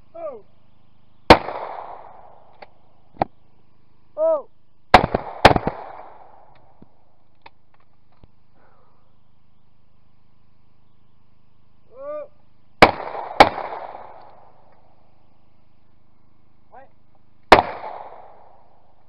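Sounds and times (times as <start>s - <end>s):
shotgun shots with echo: 1.3s - 2.3s, 4.9s - 6.4s, 12.8s - 14.4s, 17.5s - 18.6s
person shouting: 4.2s - 4.5s, 11.9s - 12.4s.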